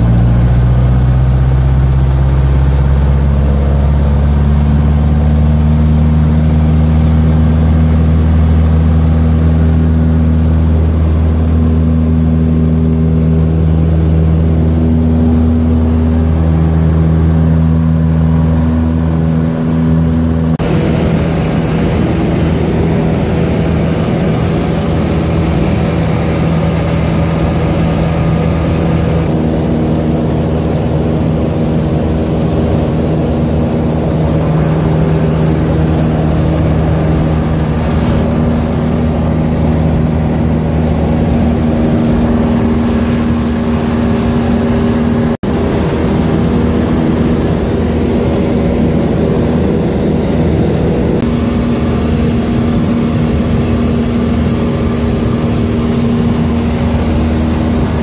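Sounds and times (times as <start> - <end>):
airplane engine and propeller drone: 0.0 - 58.0
rushing air noise: 12.3 - 58.0.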